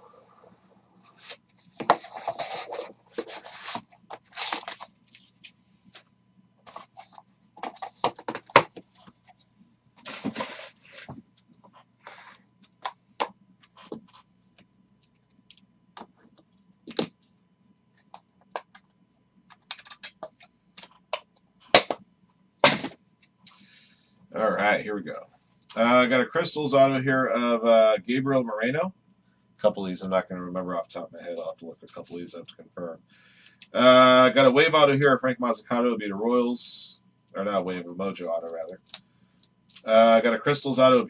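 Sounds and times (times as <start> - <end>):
cardboard and plastic handling: 1.2 - 9.2, 10.0 - 11.2.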